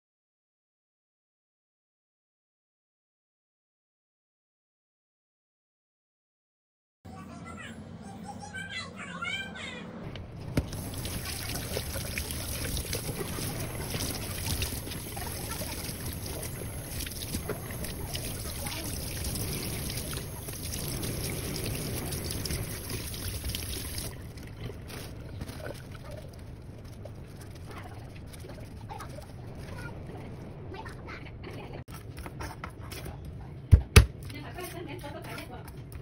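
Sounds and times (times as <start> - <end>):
tap water running into sink: 10.5 - 24.2.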